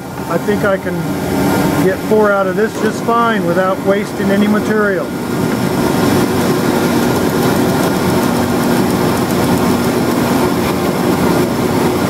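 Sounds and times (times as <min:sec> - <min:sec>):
dust collection hose drawing air: 0:00.0 - 0:12.0
drill press cutting plywood: 0:05.4 - 0:12.0.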